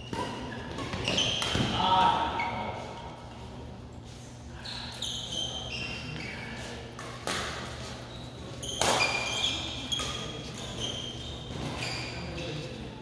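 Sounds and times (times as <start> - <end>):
shoes squeaking on court: 0.0 - 3.0, 3.9 - 12.8
racket hitting shuttlecock: 7.0 - 7.8, 8.7 - 9.4.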